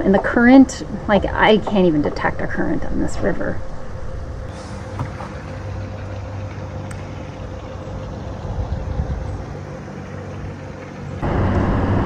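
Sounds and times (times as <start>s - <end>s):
faint steady hum: 0.0s - 12.0s
low rumble and hiss: 0.0s - 12.0s.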